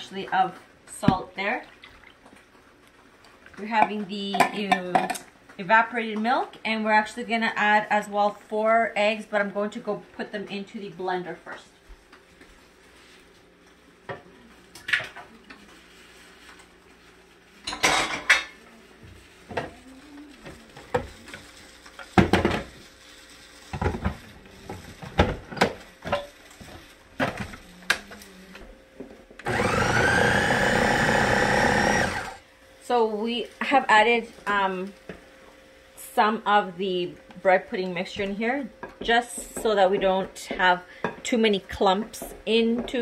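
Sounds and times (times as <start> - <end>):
blender running: 29.4 - 32.4.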